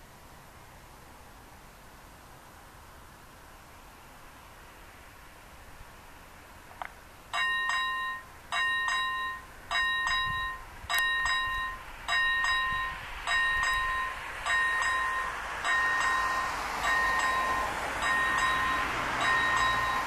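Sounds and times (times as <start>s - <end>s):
level crossing warning bell: 7.3s - 20.0s.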